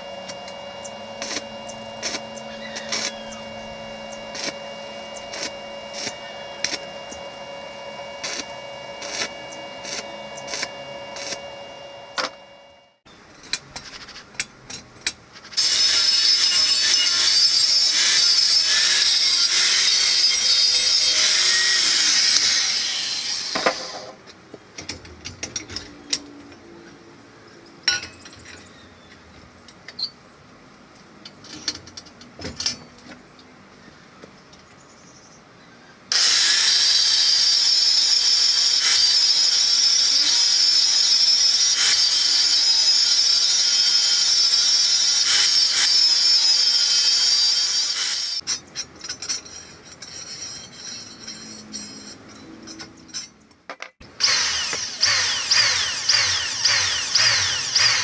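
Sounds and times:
angle grinder cutting steel: 0.0 - 12.5, 15.6 - 24.1, 36.1 - 53.3, 54.0 - 58.0.

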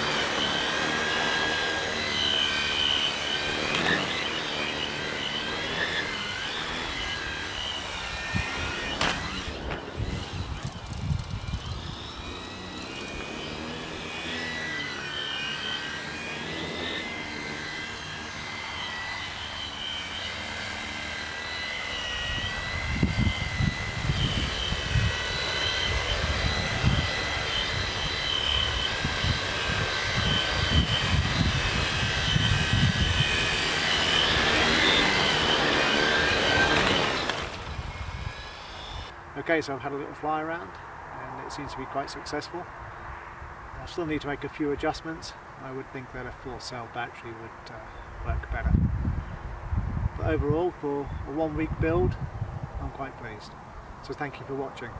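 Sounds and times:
drone motors whining: 0.0 - 39.2
gusty low rumbles: 48.3 - 50.2.

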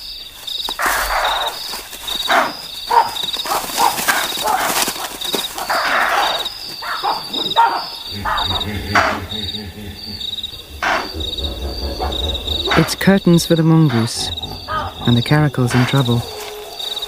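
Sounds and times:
crickets trilling: 0.0 - 17.0
low hum: 8.1 - 16.8.

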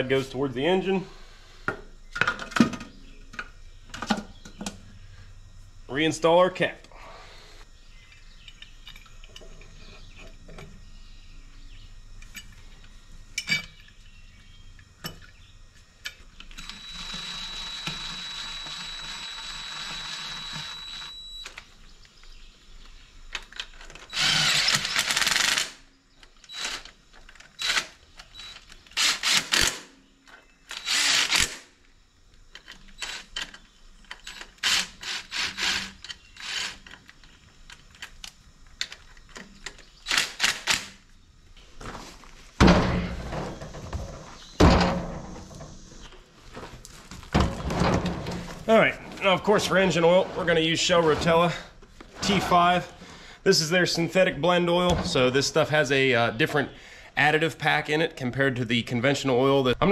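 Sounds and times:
whirring with high whine: 0.0 - 41.4
cordless drill running: 16.5 - 21.4, 24.1 - 25.8, 26.5 - 27.0, 27.6 - 29.8, 30.7 - 31.6, 34.3 - 36.9.

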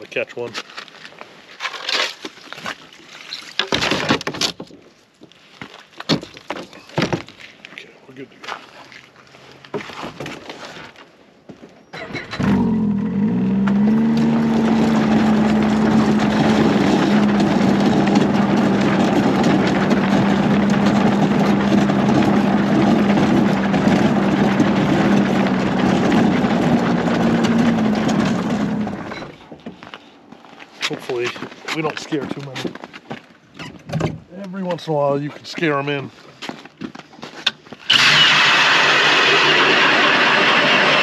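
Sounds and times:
snowmobile engine running: 12.4 - 29.2, 37.9 - 41.0.

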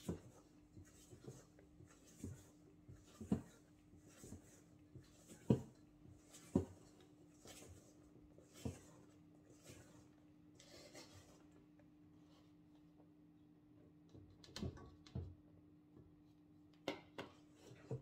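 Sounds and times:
spatula scraping and swishing: 0.0 - 11.6.

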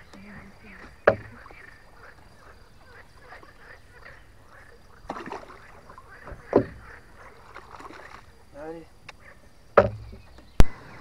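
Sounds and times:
water splashing beside a boat: 5.0 - 8.4.

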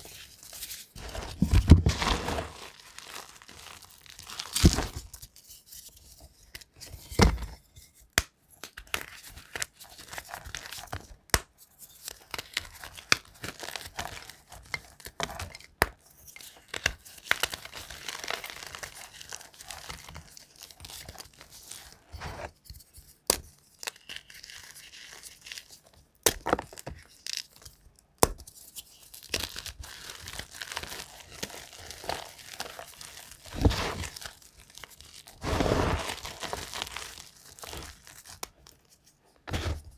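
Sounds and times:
powdery rustling: 0.0 - 5.4, 29.7 - 39.9
chalk crunching and cracking: 0.0 - 6.5, 28.3 - 39.9.

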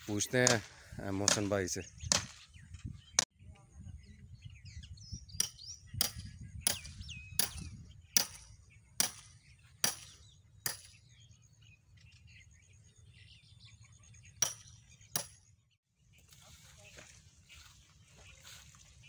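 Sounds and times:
birds chirping: 0.0 - 19.0
axe chopping firewood: 0.4 - 1.5, 2.1 - 2.4, 9.0 - 10.9.

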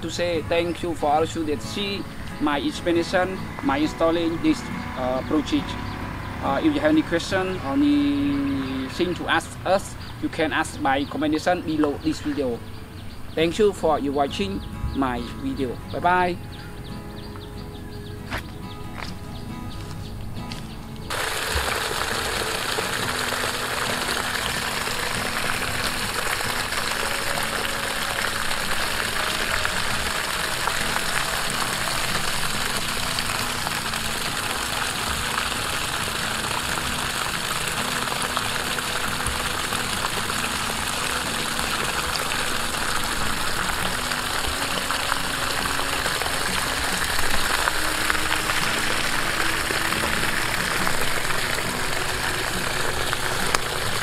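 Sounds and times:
water pouring from pipe onto grass: 21.1 - 54.0.

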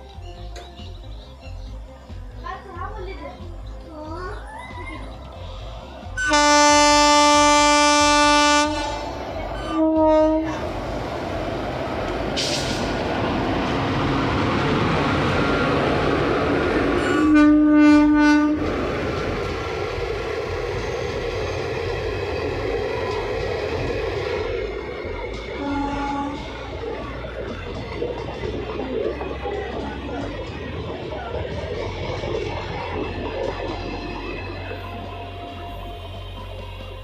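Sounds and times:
train rumbling on the track: 0.0 - 37.0
train horn blasts: 6.2 - 10.7, 17.0 - 18.6, 25.6 - 26.6.

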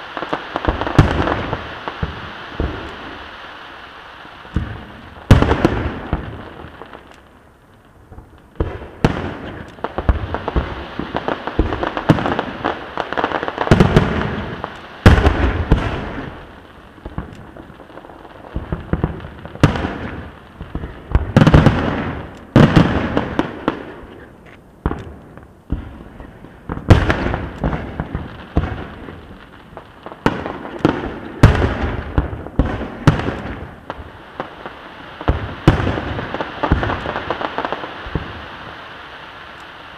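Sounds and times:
fireworks booming with echo: 0.0 - 39.9
sharp firework bangs: 4.5 - 6.7, 8.2 - 17.6, 18.5 - 29.2.

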